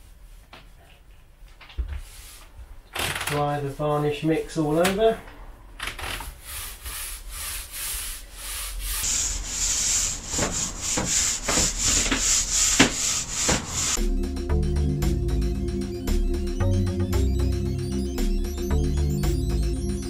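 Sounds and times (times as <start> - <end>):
paint roller swishing on board: 6.3 - 14.0
steady high hiss: 6.5 - 14.0
background music: 13.1 - 20.0.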